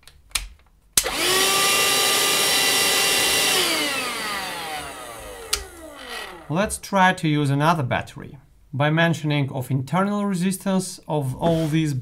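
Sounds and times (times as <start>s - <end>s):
vacuum cleaner motor whine: 1.0s - 6.6s
switch click: 5.5s - 5.7s.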